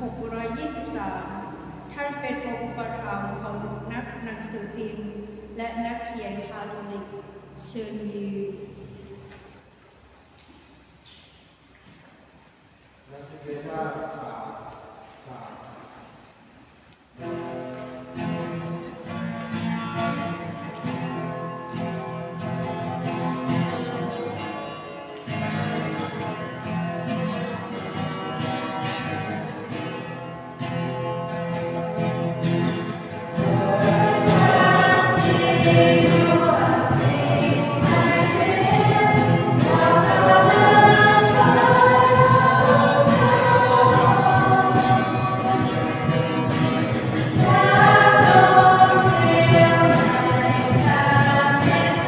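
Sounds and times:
guitar strumming: 17.2 - 52.0
choir singing: 33.3 - 52.0.

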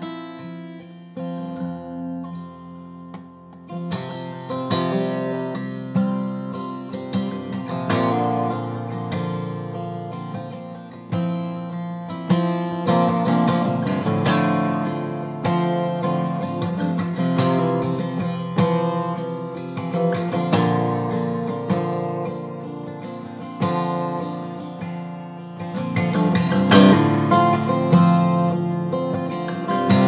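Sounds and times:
acoustic guitar chords strummed: 0.0 - 30.0.

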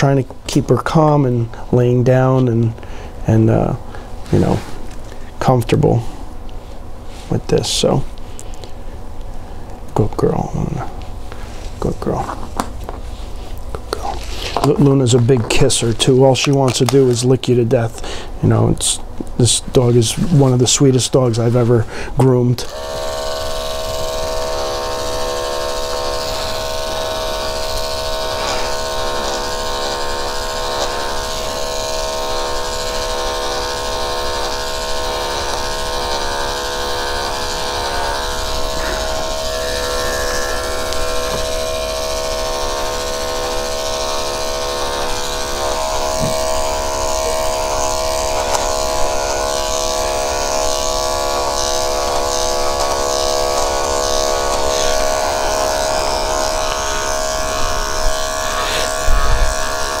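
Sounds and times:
electric clippers buzzing: 22.6 - 60.0.

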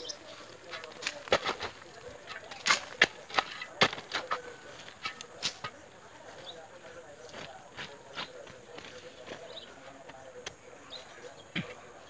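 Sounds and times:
digging bar striking soil and stones: 0.1 - 5.9.

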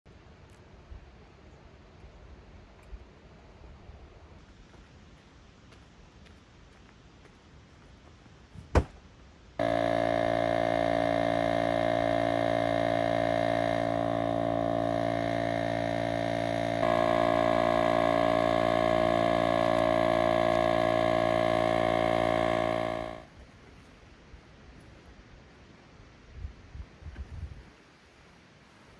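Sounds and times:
electric air pump running: 9.6 - 23.3.

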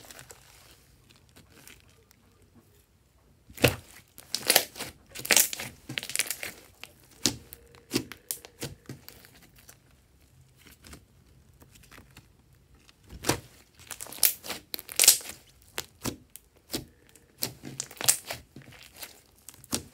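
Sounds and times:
slime crackling and popping: 3.5 - 9.8, 11.6 - 19.9.

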